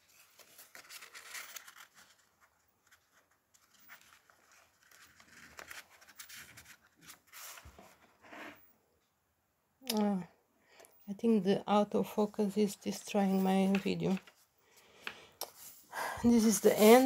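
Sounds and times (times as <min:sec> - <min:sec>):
pages being handled: 0:00.0 - 0:08.0, 0:13.3 - 0:14.5, 0:16.4 - 0:17.0
paper and card rustling: 0:00.0 - 0:08.1, 0:12.1 - 0:17.0.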